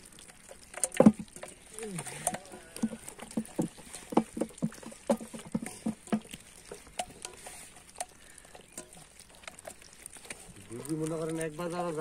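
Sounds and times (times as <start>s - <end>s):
catfish flopping and slapping: 0.0s - 12.0s.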